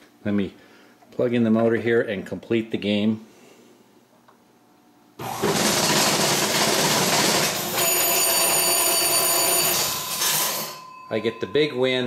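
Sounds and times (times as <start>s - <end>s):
motor-driven mechanism running: 5.2s - 8.7s
machine bell ringing: 7.4s - 12.0s.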